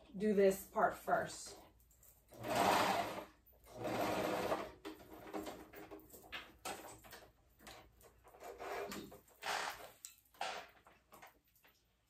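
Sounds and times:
sewing machine stitching: 2.3 - 5.8, 8.3 - 10.6.

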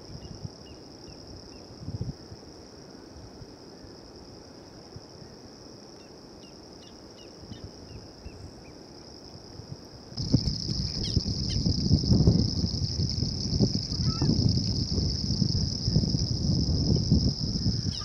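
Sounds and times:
high-pitched insect buzz: 10.2 - 18.0
low rumble: 10.2 - 18.0
small bird chirping: 10.6 - 11.7, 17.6 - 18.0.

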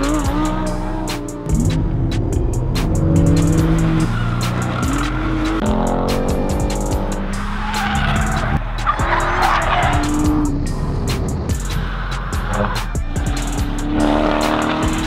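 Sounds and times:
background music with beat: 0.0 - 15.0
race car engines revving: 0.0 - 15.0
tyres squealing: 7.2 - 10.5.

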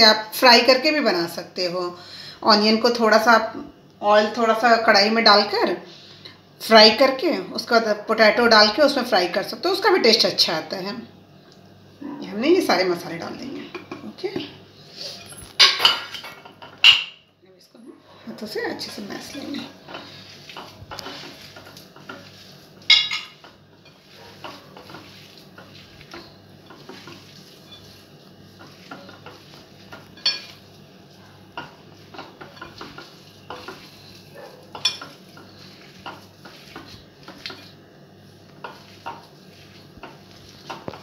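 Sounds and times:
potatoes squishing: 18.5 - 41.0.

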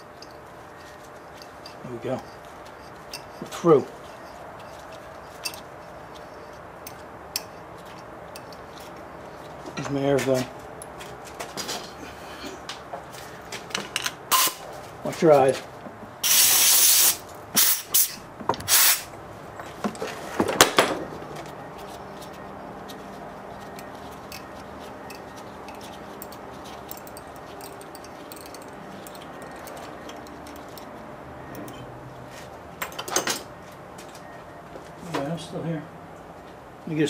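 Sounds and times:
faint steady background noise: 0.0 - 37.0.

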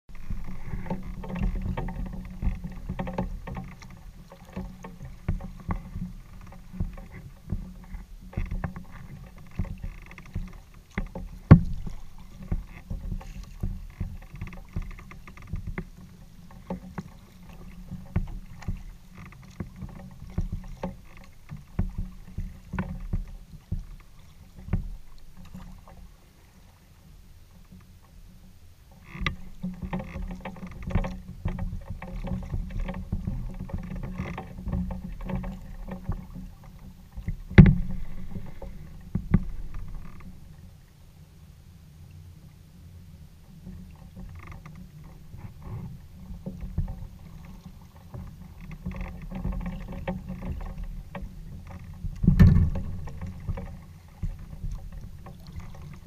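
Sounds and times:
knocks on hull: 0.1 - 26.0, 29.2 - 40.5, 44.1 - 56.0
low rumble through hull: 0.1 - 56.0
water sloshing against kayak hull: 0.1 - 56.0
loud thump on hull: 37.2 - 40.4, 52.0 - 55.1.

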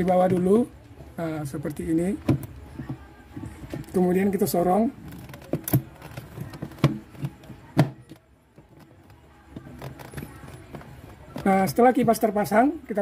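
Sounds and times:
hard plastic knocks and clicks: 1.7 - 3.0.

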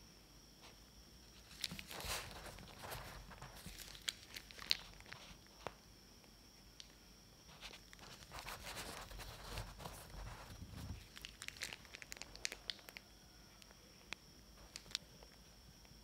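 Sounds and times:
bread crust crackling: 1.4 - 5.6, 7.5 - 13.1
plastic piping bag crinkling: 1.4 - 5.8, 7.5 - 13.1, 14.1 - 15.0.

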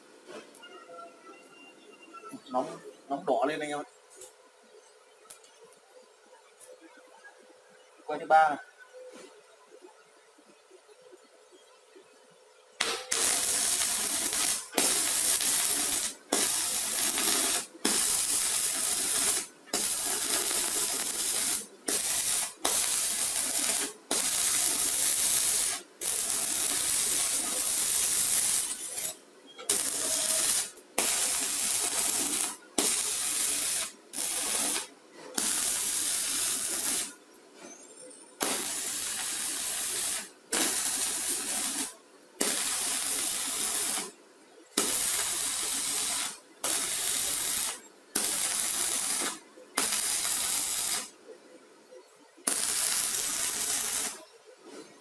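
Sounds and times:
stick welding arc sizzling: 12.8 - 37.3, 38.4 - 51.1, 52.4 - 54.3.

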